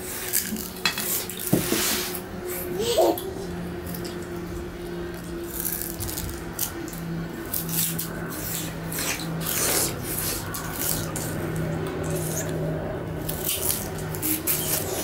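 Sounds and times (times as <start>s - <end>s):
steady low hum: 0.0s - 15.0s
sugar cane being chewed: 5.1s - 15.0s.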